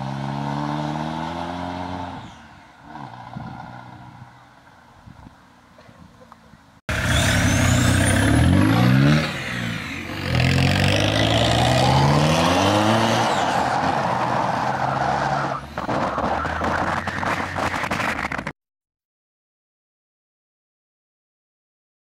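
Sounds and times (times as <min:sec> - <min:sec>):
diesel engine revving: 0:00.0 - 0:04.3, 0:06.9 - 0:17.1.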